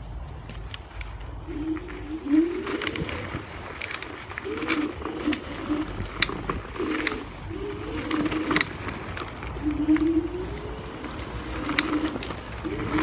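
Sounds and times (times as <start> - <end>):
scooter clattering over bumps: 0.4 - 13.0
electric motor whine: 1.2 - 13.0.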